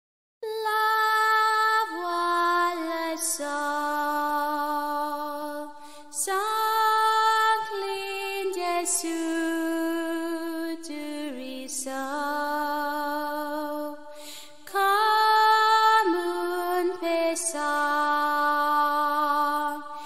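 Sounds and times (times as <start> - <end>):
woman singing wordless melody: 0.4 - 20.0
breaths between phrases: 14.1 - 14.6.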